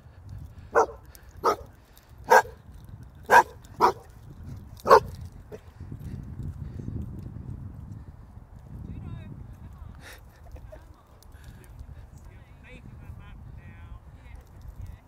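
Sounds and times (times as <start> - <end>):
dog barking: 0.7 - 1.7, 2.3 - 2.6, 3.3 - 4.1, 4.8 - 5.1.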